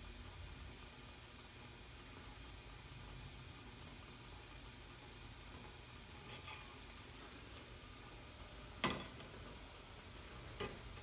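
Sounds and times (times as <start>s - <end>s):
wire strainer clinking on pot: 8.8s - 11.0s.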